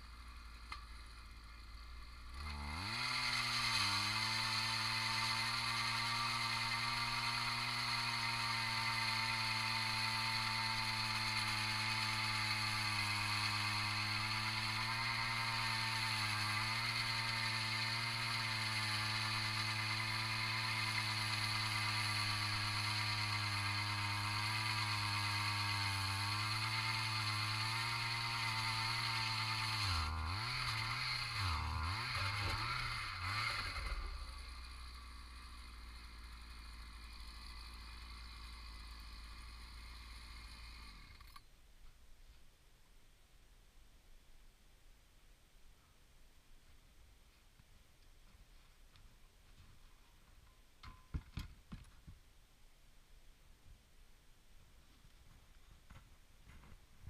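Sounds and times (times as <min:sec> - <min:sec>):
ice auger engine running: 0:00.0 - 0:41.4.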